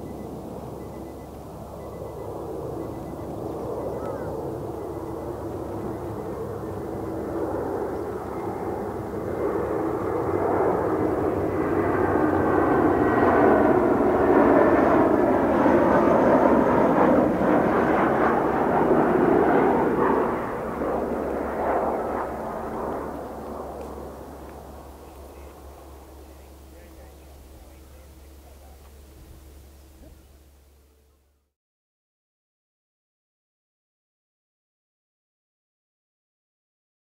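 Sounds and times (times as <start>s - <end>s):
jet airliner flying overhead: 0.0s - 31.4s.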